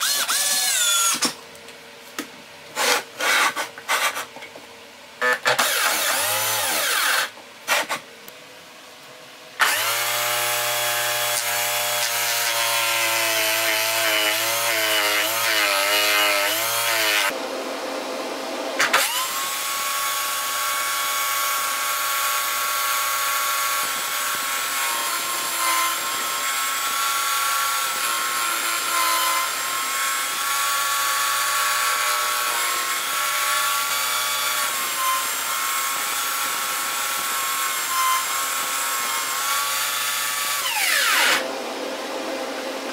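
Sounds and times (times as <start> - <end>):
electric drill motor whine: 0.0 - 1.3, 5.2 - 7.4, 9.6 - 12.4, 18.9 - 42.5.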